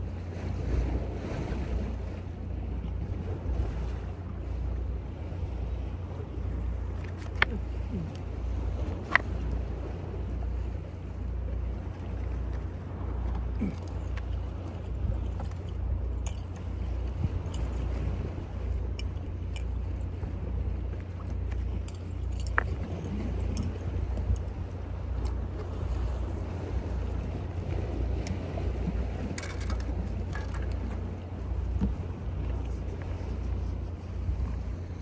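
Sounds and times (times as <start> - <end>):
wind on microphone: 0.0 - 35.0
fishing tackle clicking: 6.9 - 8.2, 20.9 - 24.6, 29.2 - 32.0.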